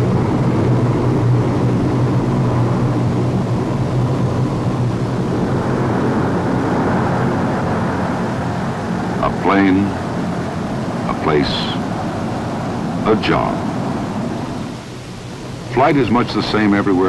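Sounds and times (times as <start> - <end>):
turboprop engines droning: 0.0 - 17.0.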